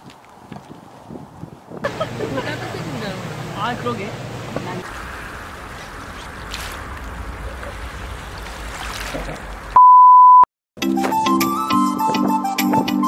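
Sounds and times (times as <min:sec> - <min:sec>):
water washing over pebbles: 0:04.8 - 0:09.8
loud steady beep: 0:09.8 - 0:10.5.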